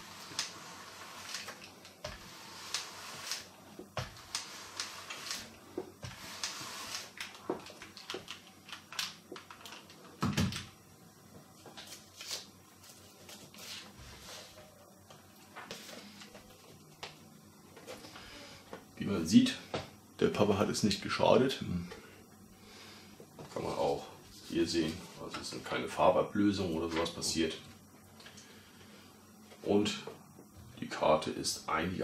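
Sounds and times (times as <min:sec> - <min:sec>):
iron sliding over paper: 0:00.0 - 0:07.4
paper rustling: 0:11.7 - 0:14.6.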